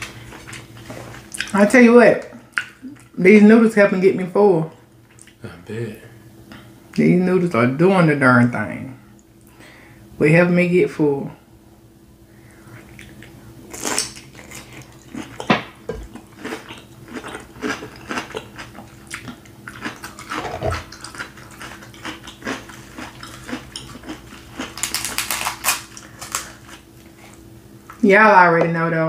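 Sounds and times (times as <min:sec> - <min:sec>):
chewing crunchy cucumber: 0:12.8 - 0:27.5
crab shell cracking: 0:24.6 - 0:26.6.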